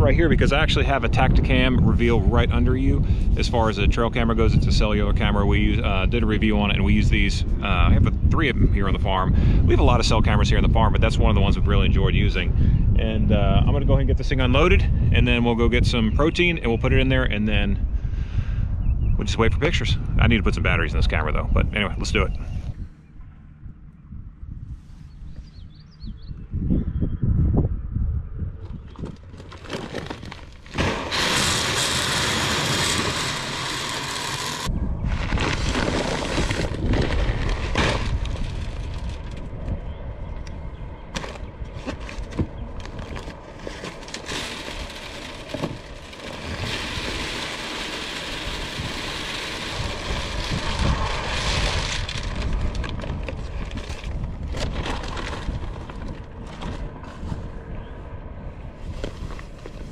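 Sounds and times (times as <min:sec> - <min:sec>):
feed pellets pouring into hopper: 0:30.7 - 0:38.7, 0:44.1 - 0:52.9.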